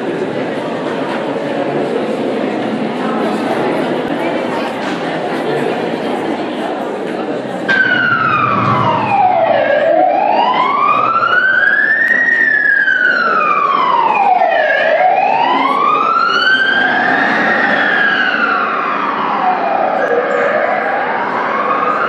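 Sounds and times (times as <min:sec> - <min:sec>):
wailing siren over loudspeaker: 0:07.7 - 0:22.0.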